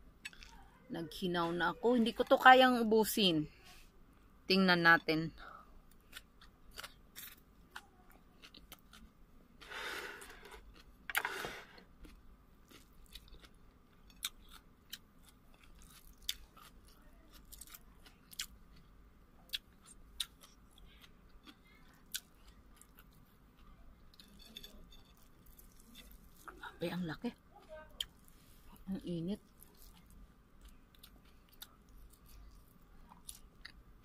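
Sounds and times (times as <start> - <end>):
chewing and lip smacking: 12.0 - 24.4, 29.4 - 33.8.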